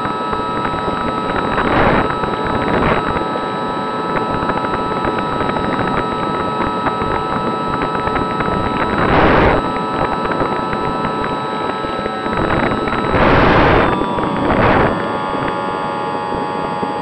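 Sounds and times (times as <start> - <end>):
propeller motor whine: 0.0 - 17.0
wind rushing over camera: 0.0 - 17.0.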